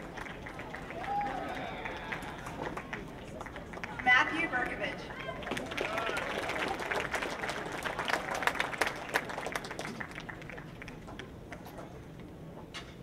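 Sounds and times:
audience applauding: 0.0 - 4.2, 5.2 - 11.0.

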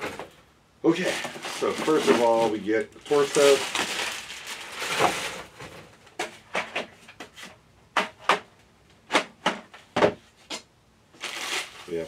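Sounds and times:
plastic bag rustling: 0.9 - 6.0, 11.2 - 12.0.

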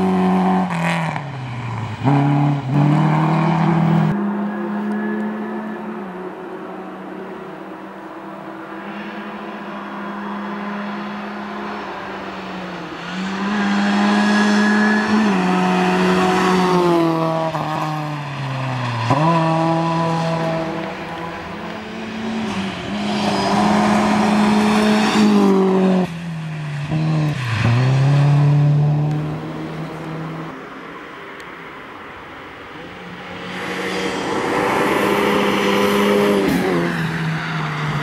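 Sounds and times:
rally car engine revving: 12.6 - 30.6.

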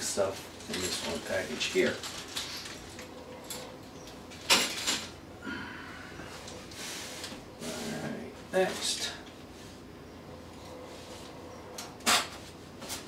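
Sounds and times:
plastic bag rustling: 0.2 - 3.1.

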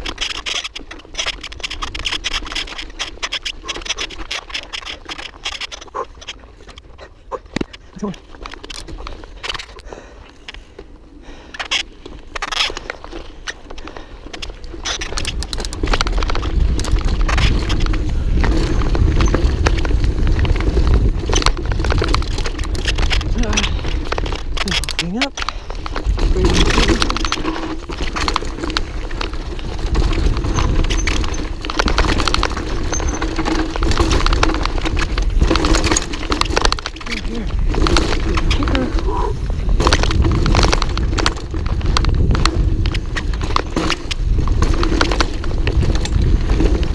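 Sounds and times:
bike rattling and knocking: 0.0 - 46.9
bike tyres on dirt: 0.0 - 46.9
wind rumble on microphone: 15.0 - 46.9.

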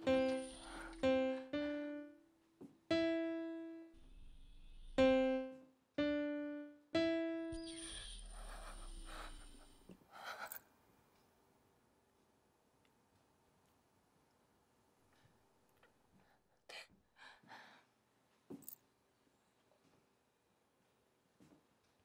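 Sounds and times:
soft breathy noise: 0.0 - 1.5, 7.8 - 11.1
piano notes: 0.0 - 9.3.

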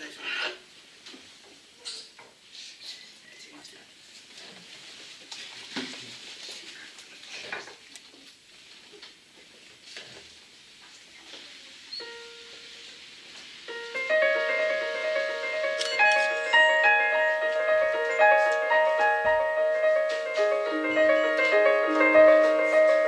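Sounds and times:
performers shuffling and rustling: 4.0 - 23.0
digital piano playing: 12.0 - 13.0, 13.7 - 23.0
music stand being adjusted: 15.8 - 16.4.

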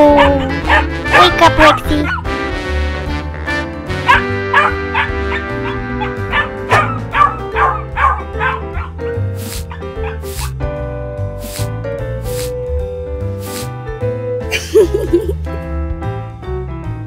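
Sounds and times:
puppy yipping: 0.0 - 2.3, 4.1 - 9.0, 9.6 - 10.6
cheerful background music: 0.0 - 17.0.

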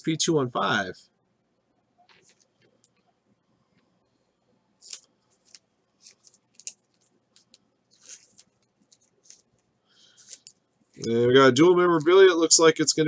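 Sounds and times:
trading cards swishing: 4.8 - 9.6.

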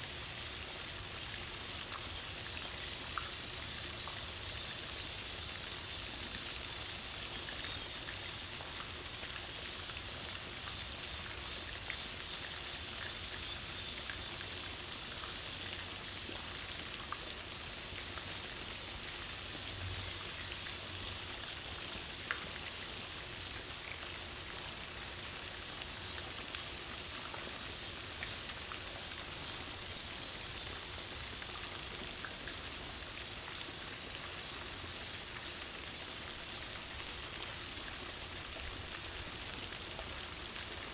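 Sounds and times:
insects chorus: 0.8 - 16.8.

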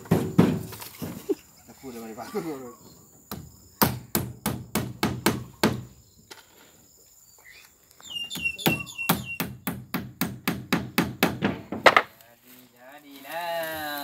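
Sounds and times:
hammer striking nails into wood: 3.3 - 5.9, 9.1 - 12.1.

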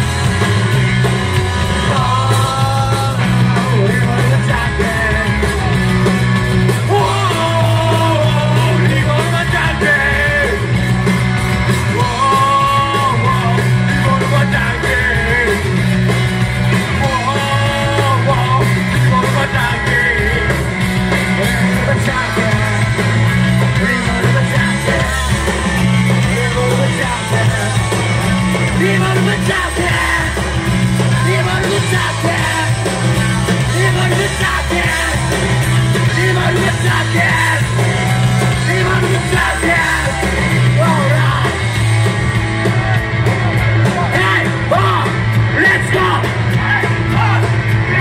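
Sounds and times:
bass guitar: 0.0 - 48.0
drums: 0.0 - 48.0
electric guitar: 0.0 - 48.0
person singing: 1.6 - 6.0, 6.8 - 10.8, 11.9 - 15.8, 16.8 - 41.8.

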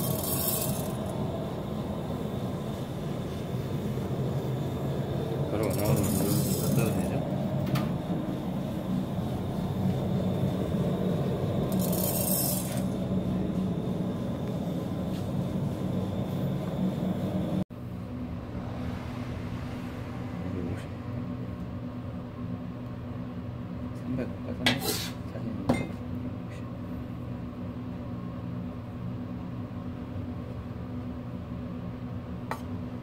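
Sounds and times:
grain mill motor hum: 0.0 - 17.6
brief hisses: 24.8 - 25.2.

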